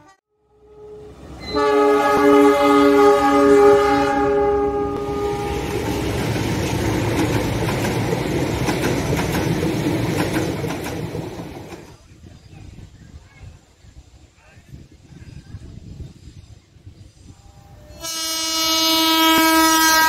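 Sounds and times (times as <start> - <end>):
locomotive horn blast: 0.5 - 6.0, 17.8 - 20.0
train rumbling and clattering: 1.1 - 18.1
wheels clicking over rail joints: 5.8 - 12.0.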